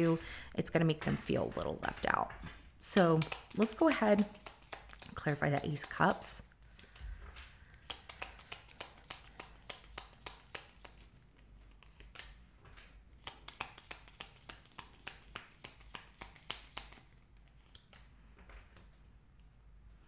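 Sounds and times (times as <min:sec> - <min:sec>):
cards shuffling with crisp snaps: 0:02.9 - 0:12.4, 0:13.2 - 0:18.1.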